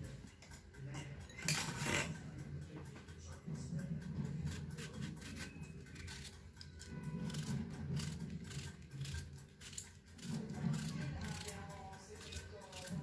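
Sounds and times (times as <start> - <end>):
knife slicing cucumber: 4.5 - 6.3, 6.9 - 11.6, 12.2 - 13.0.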